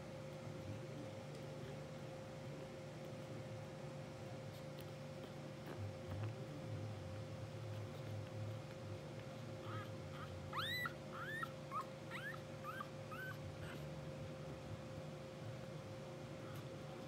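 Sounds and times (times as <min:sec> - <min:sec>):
faint steady hum: 0:00.0 - 0:17.0
puppies squeaking and whimpering: 0:09.6 - 0:13.9.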